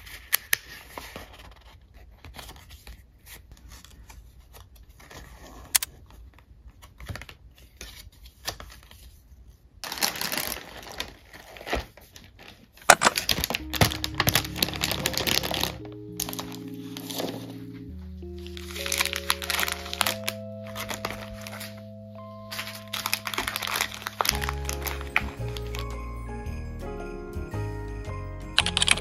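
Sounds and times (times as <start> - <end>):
paper rustling: 0.0 - 25.9
sweet packets knocking and crinkling: 9.8 - 26.4, 28.6 - 29.0
gentle music: 13.2 - 29.0.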